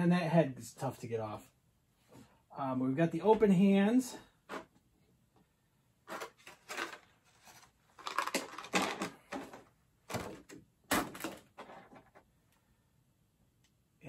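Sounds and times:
plastic rustling and clacking: 6.1s - 12.3s.

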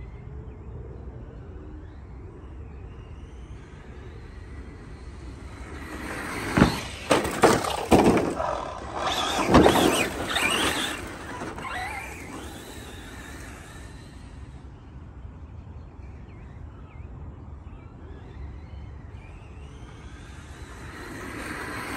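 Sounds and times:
rc truck motor whine: 0.0s - 21.9s
sharp knocks of truck landing: 6.5s - 11.6s.

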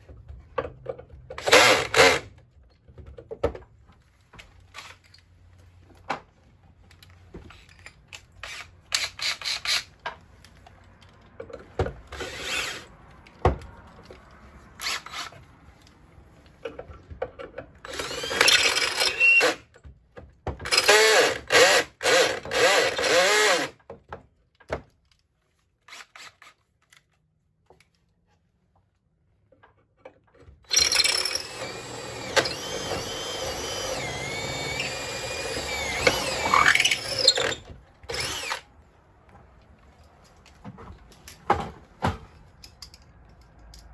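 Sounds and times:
power drill boring into wood: 1.4s - 2.3s, 12.1s - 12.9s, 17.9s - 19.6s, 20.7s - 23.7s, 30.7s - 38.6s.

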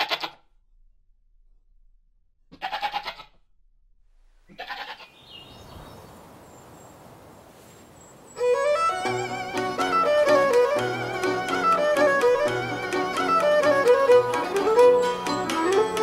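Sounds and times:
goat bleating: 0.0s - 0.4s, 2.5s - 3.4s, 4.5s - 5.2s
faint hiss: 5.3s - 8.9s
violin music: 8.4s - 16.0s.

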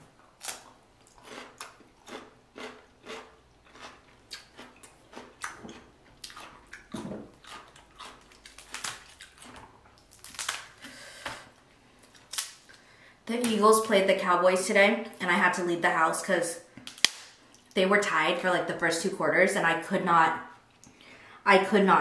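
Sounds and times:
wet chewing sounds: 0.4s - 10.5s.

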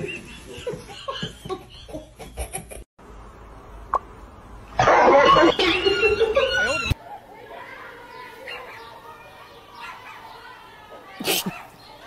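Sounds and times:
dog yelp: 9.8s - 10.3s.

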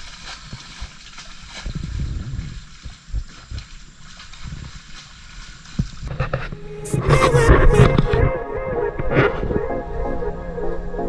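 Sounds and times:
water splashing and sloshing: 0.0s - 9.6s
low rumble: 6.5s - 11.0s.

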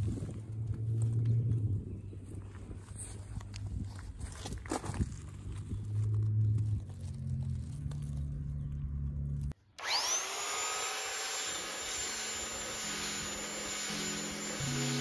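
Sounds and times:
electric sander whining: 9.8s - 15.0s.

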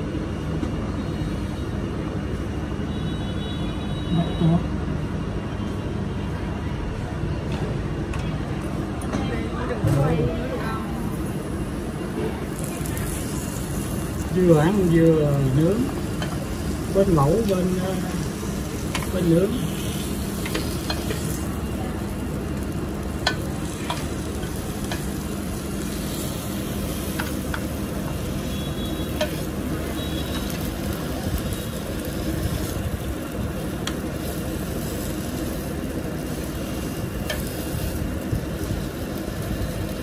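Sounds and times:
meat sizzling on griddle: 10.6s - 40.0s.

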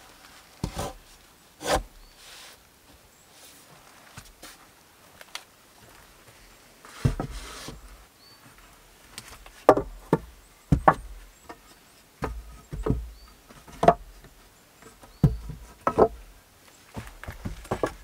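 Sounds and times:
wooden logs knocking together: 9.2s - 16.3s, 16.9s - 18.0s.

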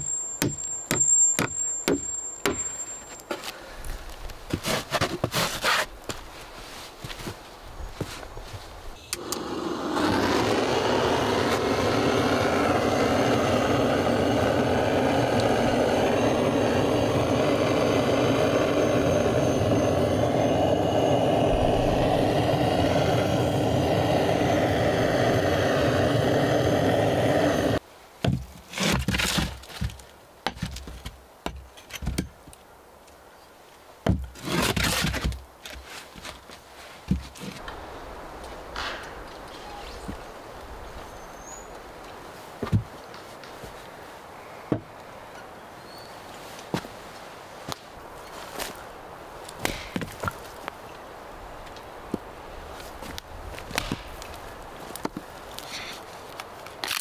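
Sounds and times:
knocks and scrapes of wood: 4.5s - 6.3s, 28.2s - 32.5s, 34.0s - 37.7s, 42.6s - 43.8s
gas torch rushing: 9.1s - 27.8s.

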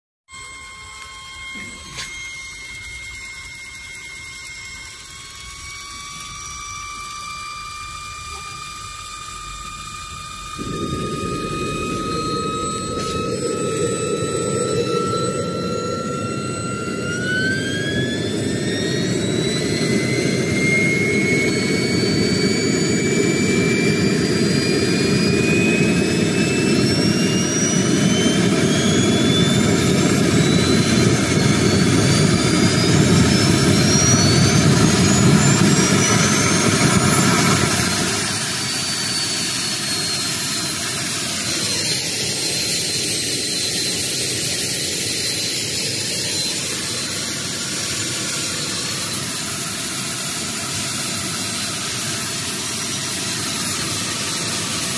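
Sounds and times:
turbine whine rising: 0.3s - 54.9s
loud low rushing noise: 10.6s - 17.5s.

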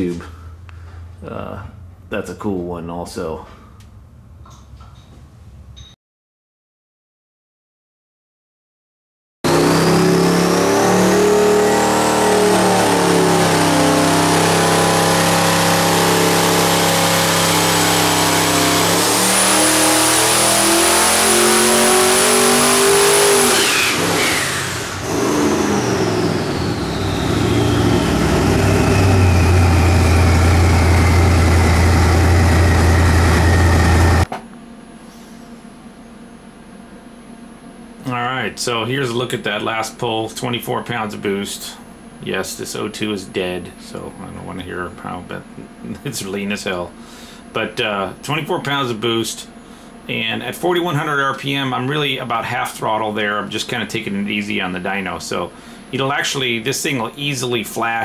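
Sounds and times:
faint hum: 0.0s - 5.8s, 26.3s - 58.0s
turbo whine: 9.4s - 58.0s
engine running hard: 9.5s - 34.3s.

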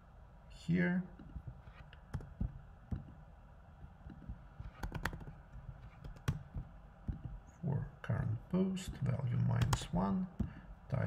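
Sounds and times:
computer keyboard typing: 2.1s - 2.6s, 4.1s - 7.4s, 9.5s - 10.0s.

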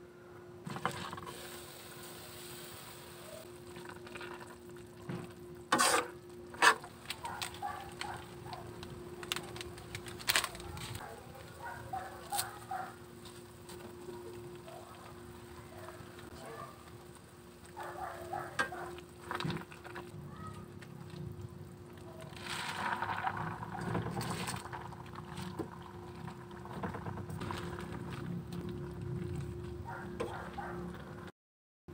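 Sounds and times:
faint hum: 0.0s - 31.3s
plastic packet crinkling: 6.9s - 12.8s.

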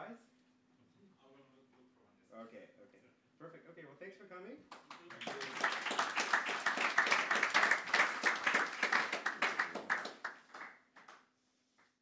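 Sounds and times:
audience applauding: 4.7s - 11.2s.

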